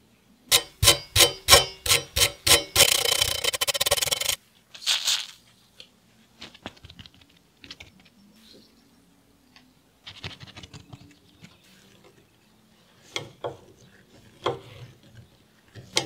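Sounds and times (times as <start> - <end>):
spray can ball rattling: 1.8 - 5.4.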